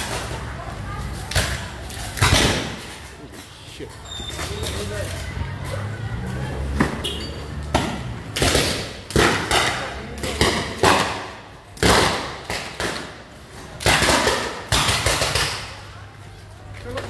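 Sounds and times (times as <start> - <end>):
power cables arcing with bangs: 7.8 - 15.8.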